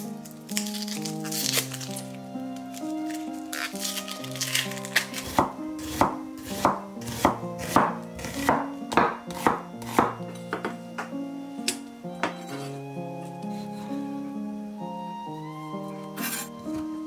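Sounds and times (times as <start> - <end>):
onion skin crackling: 0.0 - 8.4
soft background music: 0.0 - 17.0.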